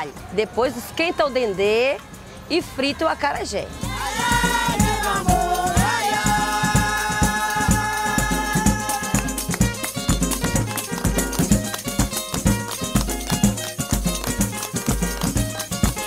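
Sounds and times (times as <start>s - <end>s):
background music with shakers: 0.0s - 16.0s
steady bass beat: 3.8s - 16.0s.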